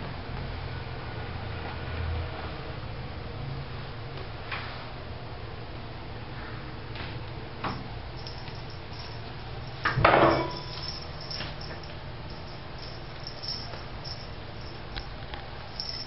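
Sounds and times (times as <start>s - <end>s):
clatter on tile floor: 7.7s - 12.0s
kitten tapping and scuffling: 7.7s - 16.0s.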